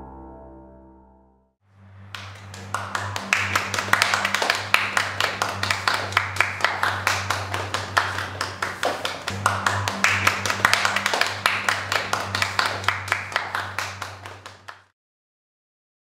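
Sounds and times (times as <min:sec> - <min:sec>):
piano music: 0:00.0 - 0:01.5, 0:02.2 - 0:14.7
low steady hum: 0:01.7 - 0:14.7
audience clapping: 0:02.1 - 0:14.9.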